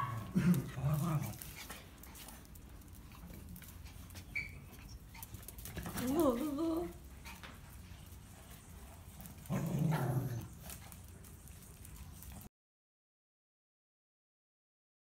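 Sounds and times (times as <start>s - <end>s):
dog whining: 4.2s - 5.4s
short high squeak: 4.3s - 4.8s.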